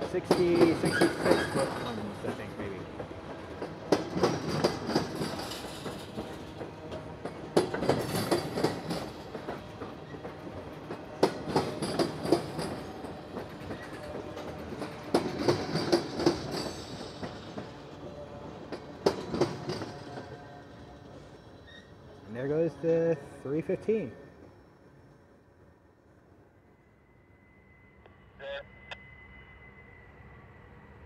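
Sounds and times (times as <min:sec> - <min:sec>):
freight train rolling rumble: 0:00.0 - 0:26.4
train wheels clacking over rail joint: 0:00.1 - 0:02.4, 0:03.0 - 0:17.9, 0:18.5 - 0:20.4.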